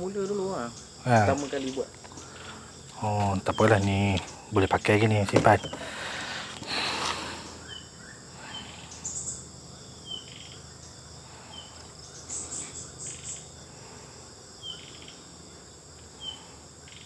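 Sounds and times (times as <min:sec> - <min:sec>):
insect trills: 0:00.0 - 0:17.0
insects chirping: 0:00.0 - 0:17.0
plastic bottle handled on tray: 0:05.2 - 0:06.7.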